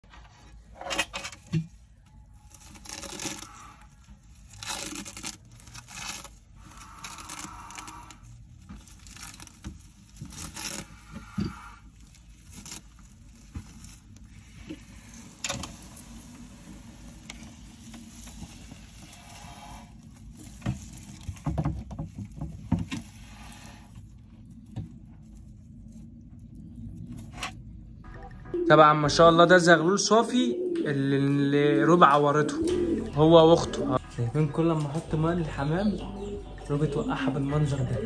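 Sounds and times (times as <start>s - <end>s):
shed skin crackling and rustling: 1.4s - 27.3s.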